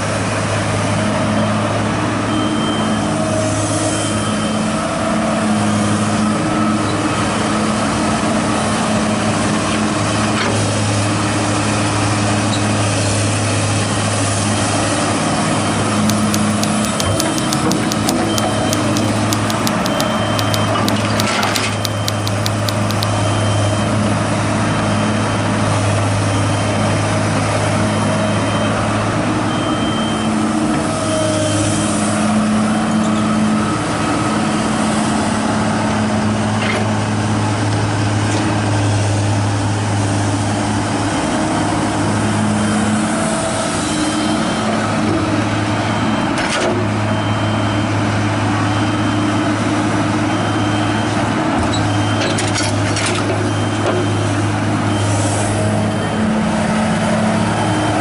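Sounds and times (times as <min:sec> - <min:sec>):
excavator diesel engine running: 0:15.8 - 0:23.6
sharp clacks: 0:16.1 - 0:23.1
faint high beep: 0:16.1 - 0:23.7.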